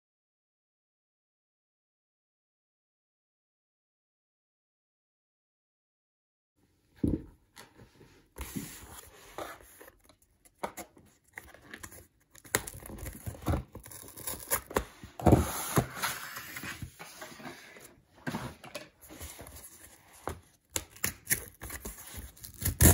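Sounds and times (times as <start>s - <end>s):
hands handling cardboard box: 7.0s - 22.9s
cardboard tearing rustles: 11.4s - 16.9s, 20.9s - 22.9s.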